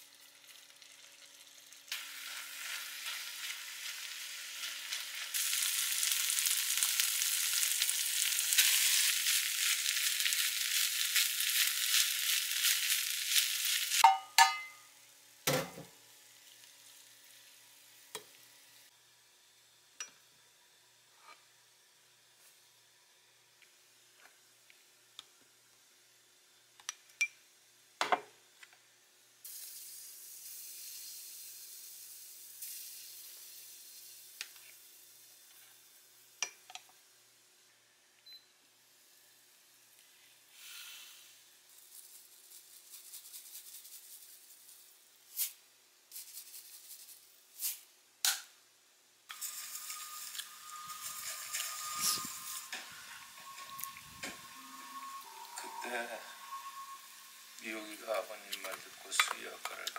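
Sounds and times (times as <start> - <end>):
fried rice sizzling in a pot: 0.0 - 14.1, 15.8 - 37.7, 38.8 - 59.9
clinks of spoon lid and dishes: 14.0 - 14.9.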